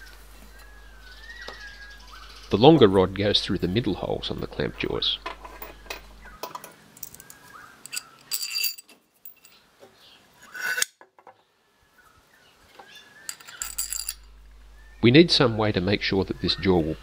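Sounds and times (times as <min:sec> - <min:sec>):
steel rod clinking: 0:04.6 - 0:09.6, 0:13.3 - 0:14.3
metal rod rattling through wood: 0:04.8 - 0:09.6, 0:13.3 - 0:14.3.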